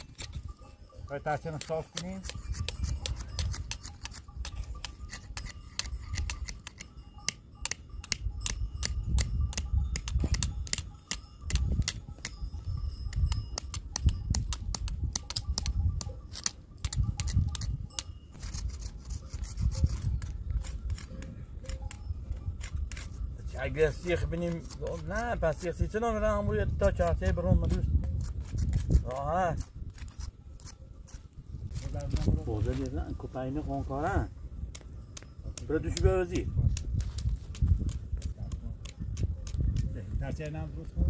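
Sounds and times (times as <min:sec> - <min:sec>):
knife scraping wooden sticks: 0:01.4 - 0:06.9, 0:16.3 - 0:23.2, 0:23.8 - 0:25.6, 0:27.7 - 0:32.4.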